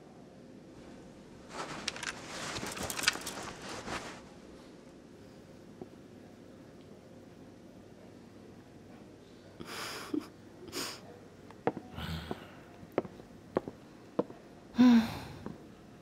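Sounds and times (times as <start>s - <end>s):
person gasping: 11.9s - 12.7s, 14.8s - 15.6s.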